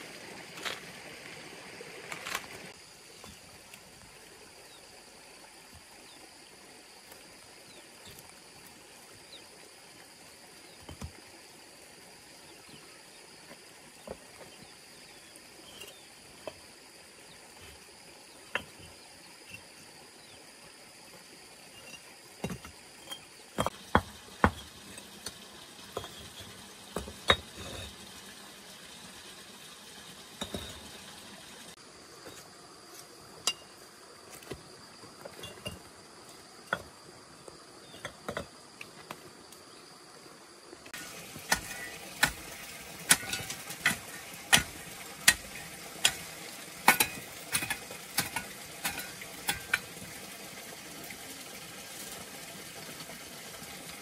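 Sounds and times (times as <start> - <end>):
clay bricks knocking and clinking: 26.0 - 27.7.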